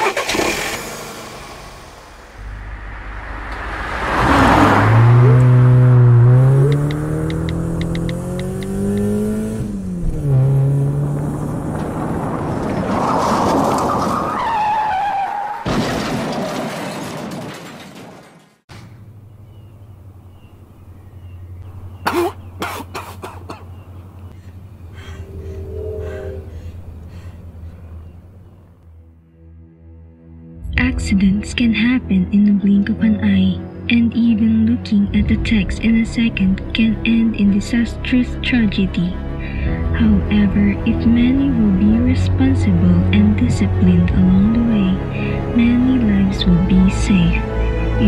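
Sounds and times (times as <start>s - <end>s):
car engine revving: 0.0s - 13.9s
loud rushing noise: 1.0s - 5.7s
sharp clicks: 6.7s - 9.1s.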